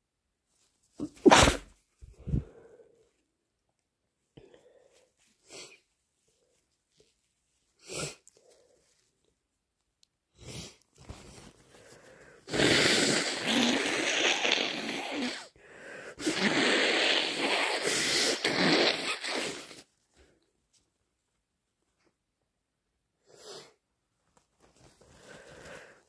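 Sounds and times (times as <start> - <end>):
person blowing nose: 1.0 - 2.5, 5.4 - 5.8, 7.8 - 8.2, 12.4 - 19.9.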